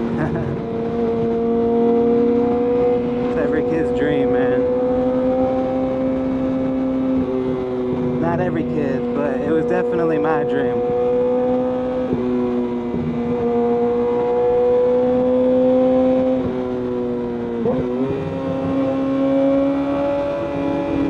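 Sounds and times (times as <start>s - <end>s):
motorcycle engine at high revs: 0.0s - 21.0s.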